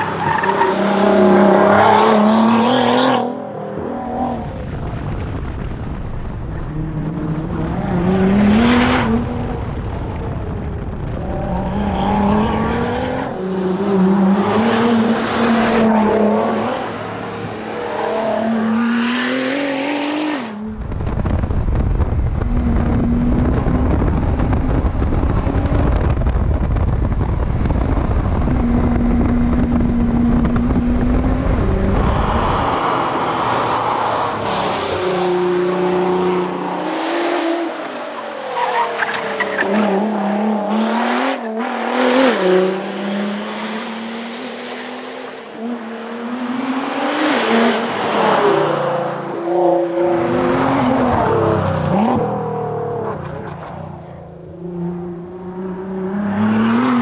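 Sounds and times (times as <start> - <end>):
wind buffeting on camera: 20.6 - 38.0.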